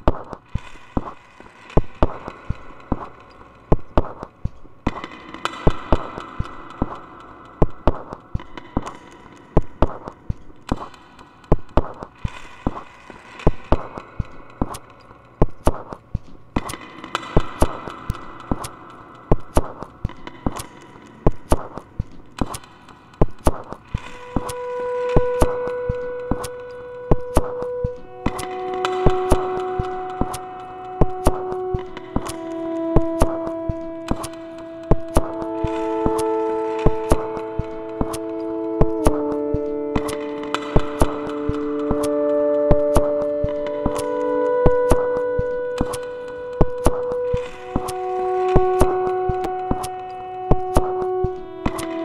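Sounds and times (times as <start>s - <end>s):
sharp electronic clicks and knocks: 0.0s - 52.0s
steady held tone: 23.3s - 52.0s
layered synthesizer tones: 23.5s - 52.0s.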